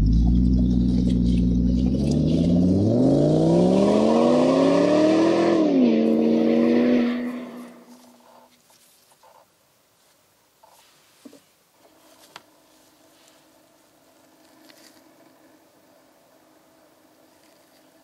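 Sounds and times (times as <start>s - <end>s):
car engine idling and revving: 0.0s - 8.6s, 11.8s - 18.0s.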